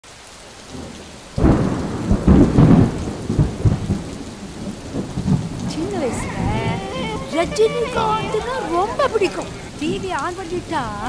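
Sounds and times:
rain hissing: 0.0 - 11.0
thunder crack and rumble: 0.7 - 7.9.

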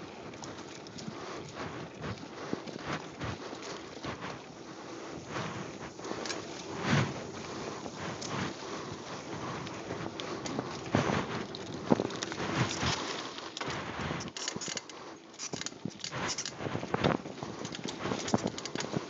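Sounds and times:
bike tyres rolling over dirt: 0.0 - 19.0
bike knocking and rattling: 5.3 - 19.0.

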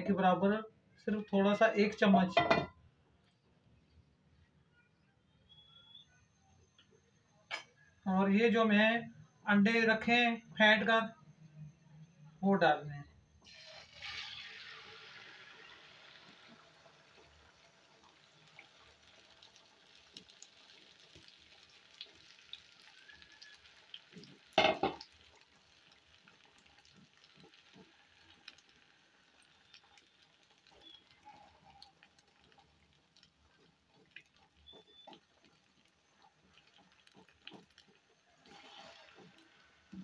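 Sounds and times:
eggs sizzling in a pan: 13.4 - 40.0.

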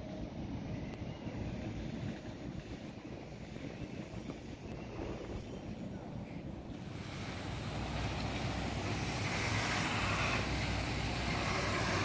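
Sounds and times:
low city rumble: 0.0 - 12.0
hiss: 6.8 - 12.0.

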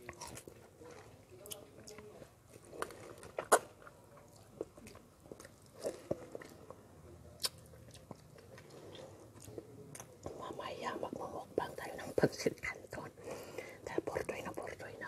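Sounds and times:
person biting and chewing fruit: 0.0 - 10.2.

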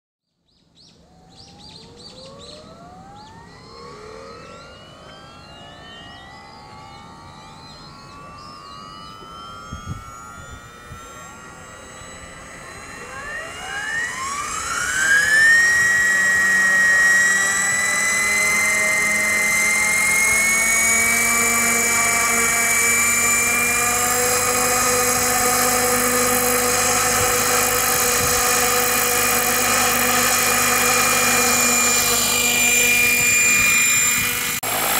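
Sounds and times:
birds chirping faintly: 0.3 - 15.6
model helicopter rotor and whine: 0.4 - 34.9.

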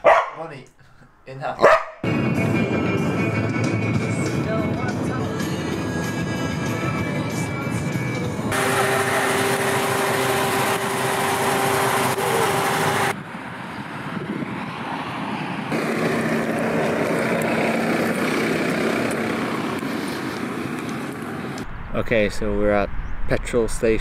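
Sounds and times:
open-air vehicle noise: 1.6 - 24.0
low steady engine hum: 3.2 - 14.3, 15.7 - 21.7.

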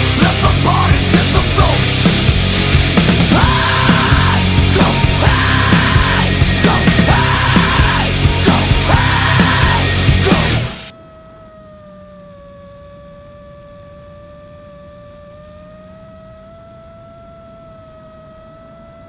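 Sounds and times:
loud heavy metal music: 0.0 - 10.9
quadcopter motors whining: 0.0 - 19.0.

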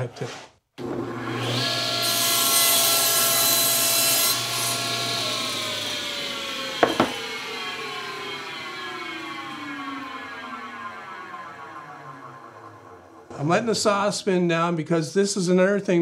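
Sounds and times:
table saw cutting plywood: 0.8 - 12.9
saw motor winding down: 4.3 - 13.4
sharp knocks: 6.8 - 7.2.

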